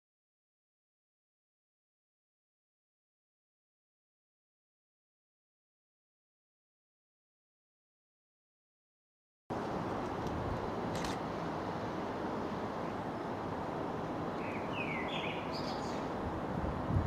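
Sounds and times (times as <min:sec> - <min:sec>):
outdoor background noise: 0:09.5 - 0:17.0
bird chirping: 0:14.4 - 0:16.1.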